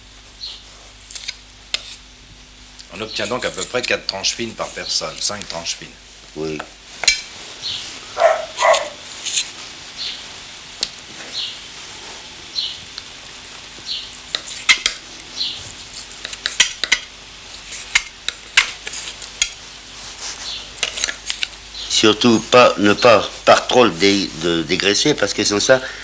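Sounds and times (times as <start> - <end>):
background hiss: 0.0 - 26.0
knife cutting strokes: 0.9 - 2.0, 2.9 - 5.7, 7.0 - 9.6, 14.2 - 15.0, 15.6 - 21.5
blade clicking on wooden board: 16.2 - 17.1, 17.8 - 19.6.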